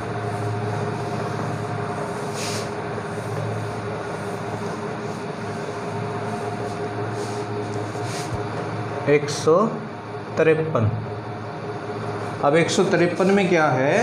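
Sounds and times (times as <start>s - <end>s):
machine hum: 0.0s - 14.0s
cloth rubbing on whiteboard: 0.1s - 8.7s.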